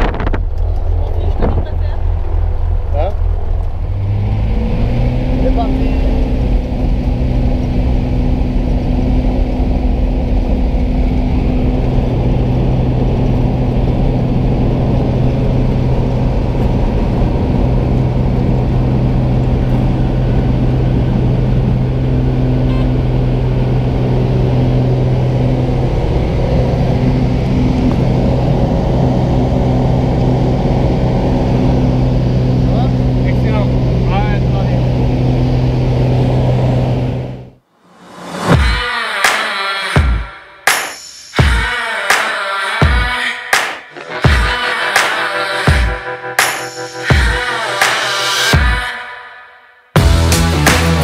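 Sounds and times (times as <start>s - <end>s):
propeller plane engine drone: 0.0s - 38.6s.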